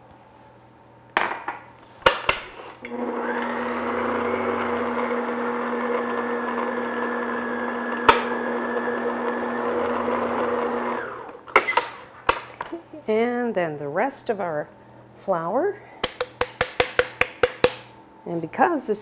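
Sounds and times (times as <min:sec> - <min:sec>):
stand mixer motor humming: 0:02.9 - 0:11.4.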